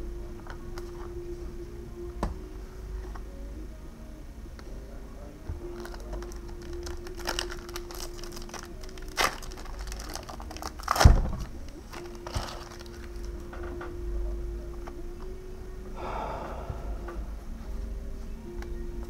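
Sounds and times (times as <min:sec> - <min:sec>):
foil wrappers crinkling: 0:05.7 - 0:13.5.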